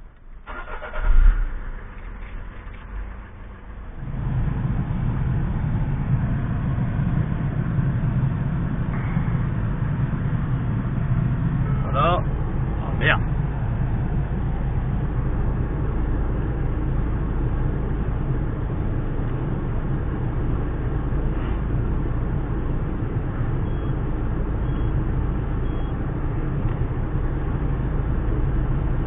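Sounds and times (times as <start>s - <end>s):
diesel engine idling: 0.0s - 29.0s
faint short beeps: 23.6s - 24.0s, 25.6s - 26.0s.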